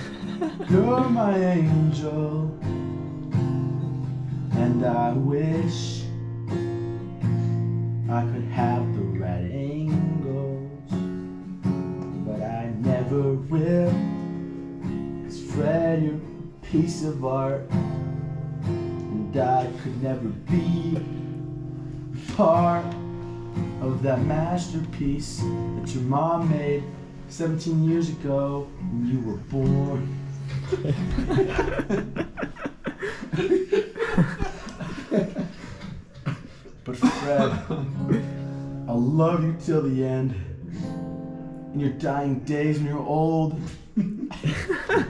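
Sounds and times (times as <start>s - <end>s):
person singing: 0.0s - 2.6s, 23.8s - 32.2s
acoustic guitar strumming: 0.0s - 36.1s, 36.9s - 43.9s.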